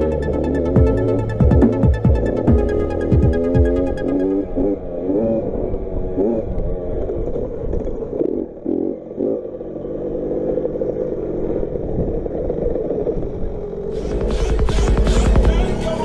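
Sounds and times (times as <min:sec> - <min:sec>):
motocross bike engine revving: 0:00.0 - 0:07.4, 0:08.0 - 0:13.0.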